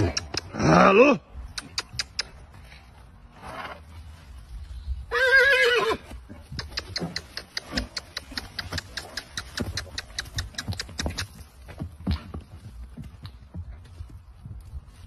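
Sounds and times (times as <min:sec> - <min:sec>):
horse whinnying: 0:05.1 - 0:06.2
hoof clicks and thuds: 0:06.0 - 0:15.0.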